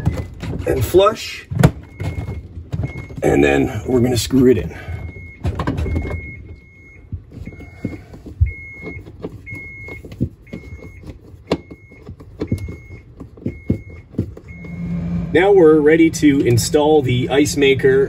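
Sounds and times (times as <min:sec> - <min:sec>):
short high electronic beep: 0:14.5 - 0:17.4.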